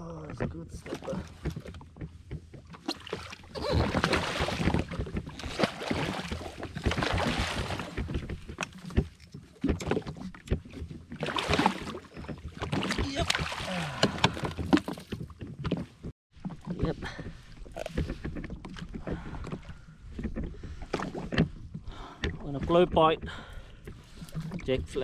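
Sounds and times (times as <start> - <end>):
rod and net knocking on hull: 0.4 - 15.8
water splashing: 2.7 - 15.2.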